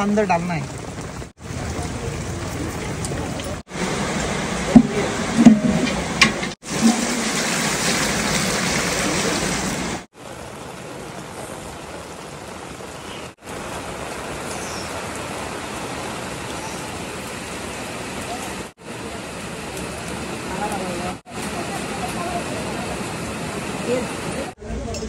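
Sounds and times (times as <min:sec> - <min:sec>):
steady rain: 0:00.0 - 0:25.0
water pouring into metal pot: 0:03.0 - 0:10.0
loud knocks: 0:04.7 - 0:06.6.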